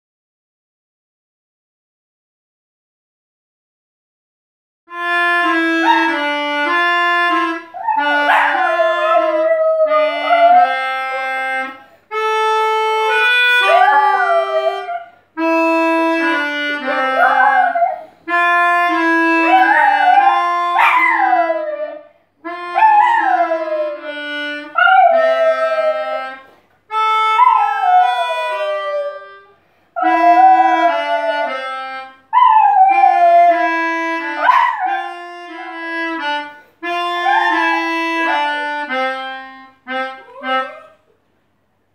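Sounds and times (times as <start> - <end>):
melodica playing slow tune: 4.9 - 41.0
dog howling: 7.8 - 11.3, 13.6 - 15.2, 17.0 - 18.1, 19.4 - 22.1, 22.7 - 24.1, 24.7 - 26.4, 27.4 - 29.2, 30.0 - 31.6, 32.4 - 35.8, 37.1 - 38.5.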